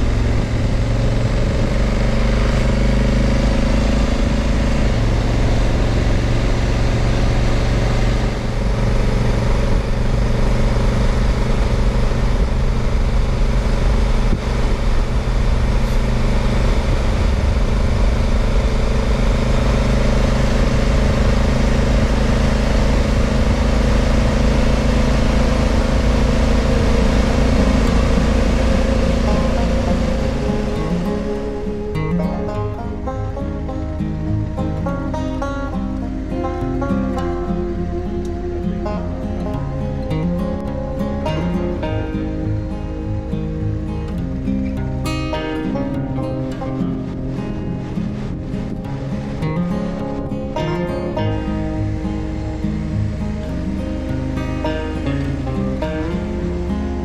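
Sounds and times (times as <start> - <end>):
wind noise on microphone: 0.0 - 33.1
motorcycle engine pulling steadily: 0.0 - 40.1, 40.7 - 57.0.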